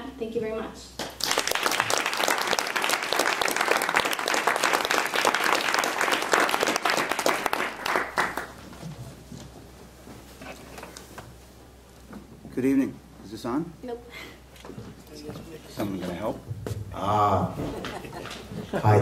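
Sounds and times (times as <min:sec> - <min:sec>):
audience applauding: 0:01.1 - 0:08.6.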